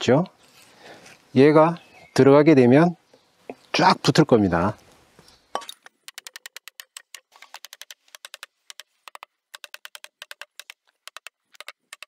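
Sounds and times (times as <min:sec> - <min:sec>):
hammer tapping on wooden floorboard: 0:07.6 - 0:12.0.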